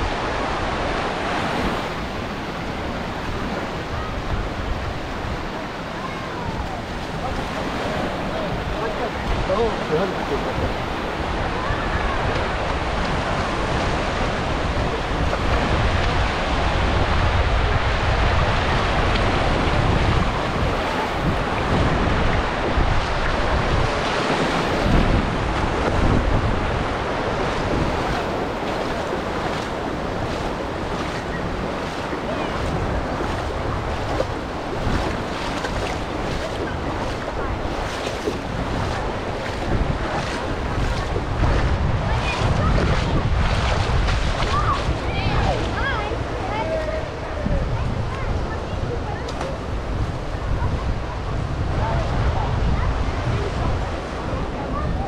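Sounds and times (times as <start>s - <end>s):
sea waves washing on beach: 0.0s - 55.0s
wind buffeting microphone: 0.0s - 55.0s
running footfalls: 27.5s - 41.7s.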